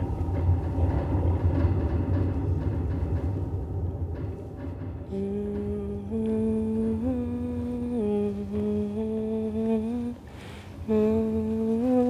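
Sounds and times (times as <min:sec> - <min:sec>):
woman humming: 0:05.1 - 0:12.0.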